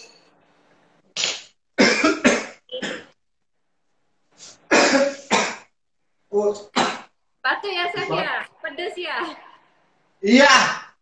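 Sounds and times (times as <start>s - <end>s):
man coughing harshly: 1.8s - 3.2s, 4.7s - 5.7s, 6.8s - 7.1s.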